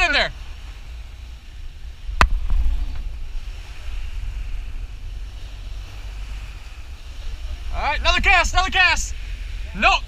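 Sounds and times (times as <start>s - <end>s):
wind on microphone: 0.0s - 9.8s
boat engine and wake: 0.0s - 10.0s
churning water hiss: 0.0s - 10.0s.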